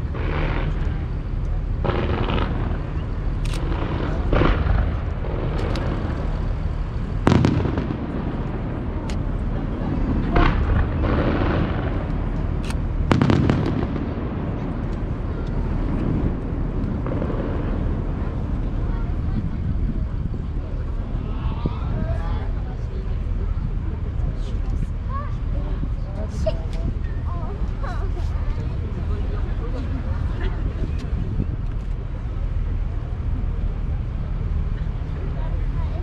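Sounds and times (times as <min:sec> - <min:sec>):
distant firework bangs: 0:00.0 - 0:18.6
steady low rumble: 0:00.0 - 0:36.0.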